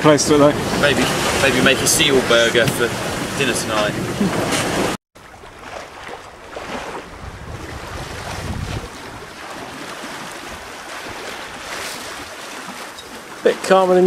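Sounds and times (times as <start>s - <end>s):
water rushing past hull: 0.0s - 14.0s
wind on microphone: 5.9s - 12.3s.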